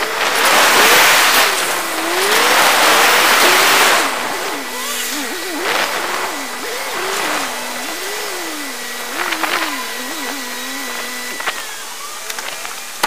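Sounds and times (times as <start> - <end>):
wind and road noise: 0.0 - 11.8
faint high whine: 0.0 - 13.0
vehicle engine revving: 0.0 - 13.0.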